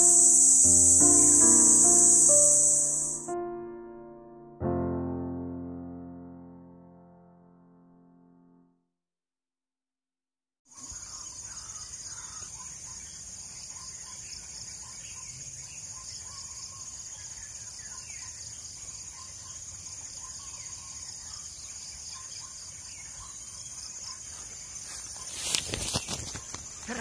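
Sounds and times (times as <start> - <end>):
birds chirping: 0.0 - 3.3, 10.7 - 27.0
high-pitched insect drone: 0.0 - 3.3.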